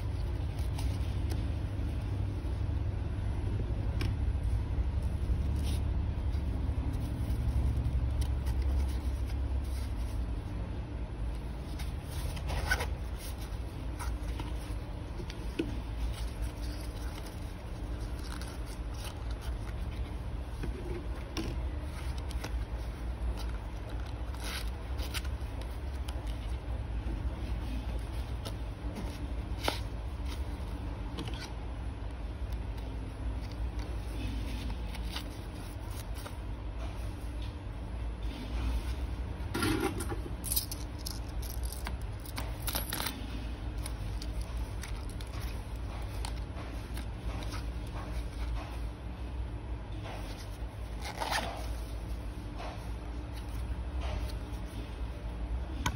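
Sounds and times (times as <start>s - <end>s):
cards scraping and clicking: 5.4s - 10.3s, 11.6s - 36.9s, 39.6s - 48.8s, 49.9s - 55.0s.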